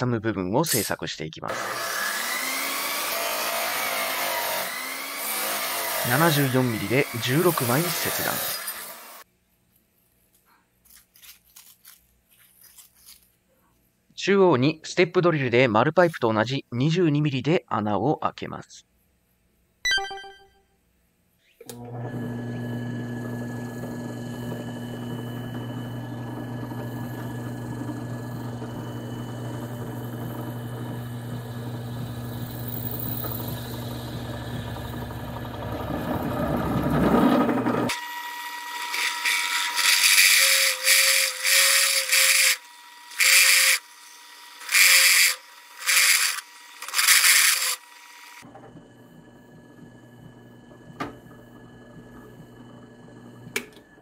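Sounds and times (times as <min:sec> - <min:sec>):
drill bit cutting steel: 0:00.7 - 0:09.2, 0:23.6 - 0:48.4
drill press motor hum: 0:21.6 - 0:54.0.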